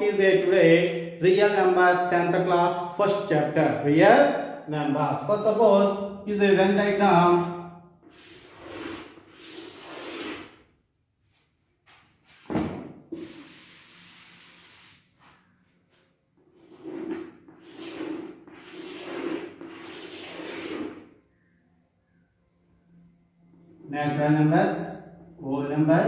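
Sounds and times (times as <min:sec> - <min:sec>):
chalk scraping on chalkboard: 0:08.0 - 0:10.6, 0:13.1 - 0:15.5, 0:16.5 - 0:21.1.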